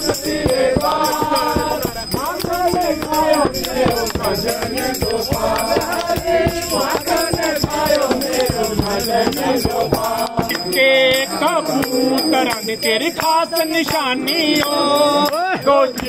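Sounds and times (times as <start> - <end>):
shaking rattle: 0.0 - 11.3
steady drum beats: 0.0 - 13.4.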